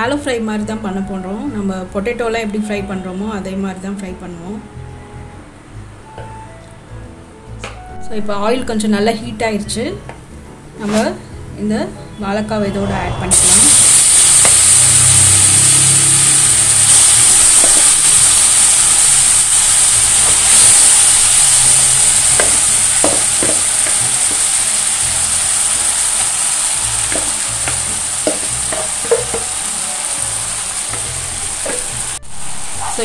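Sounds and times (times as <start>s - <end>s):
food sizzling in hot oil: 13.3s - 33.0s.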